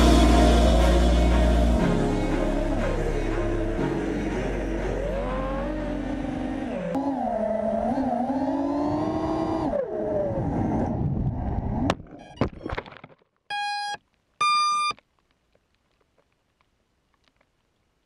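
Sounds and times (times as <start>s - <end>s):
drone motors whining: 4.2s - 11.0s
short electronic beeps: 13.5s - 15.0s.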